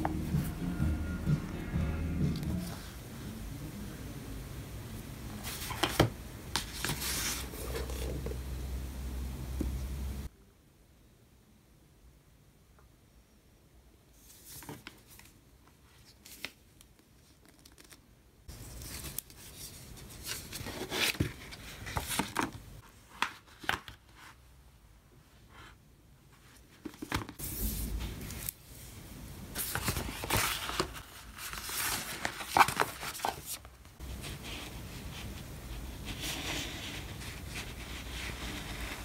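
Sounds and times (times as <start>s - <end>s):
paper sheet crinkling: 14.3s - 24.4s, 29.6s - 35.4s
paper dust jacket rustling: 29.5s - 39.0s.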